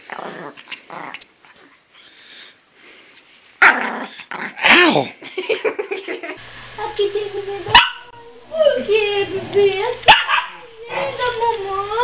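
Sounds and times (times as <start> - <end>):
dog growling snaps: 0.0 - 1.7
small dog barking: 7.7 - 8.1, 10.1 - 10.6.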